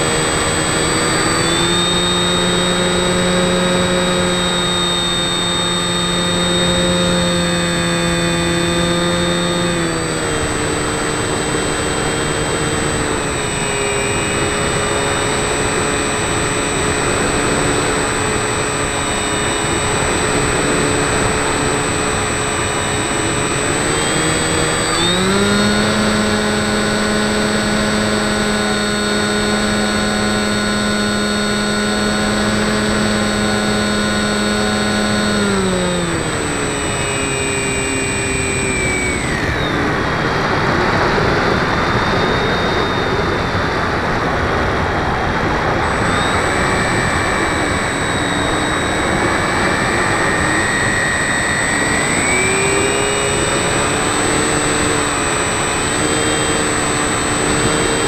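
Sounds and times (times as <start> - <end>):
model plane motor whining: 0.0 - 58.0.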